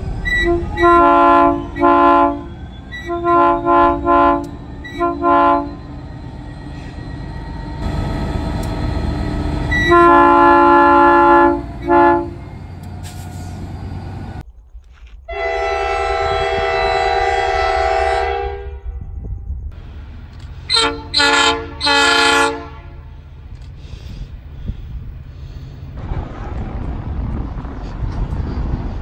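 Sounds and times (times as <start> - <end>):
locomotive air horn blasts: 0.0 - 6.1, 7.8 - 13.8, 15.3 - 18.9, 20.6 - 23.4
passing train rumble: 0.0 - 29.0
second train horn low chord: 0.1 - 6.1, 7.8 - 13.6, 15.3 - 18.9, 20.6 - 23.4.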